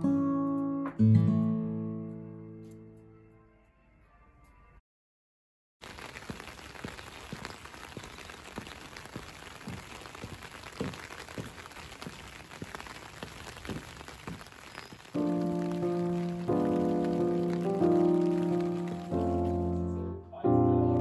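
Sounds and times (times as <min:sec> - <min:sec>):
rain falling on wet street: 0:05.8 - 0:19.8.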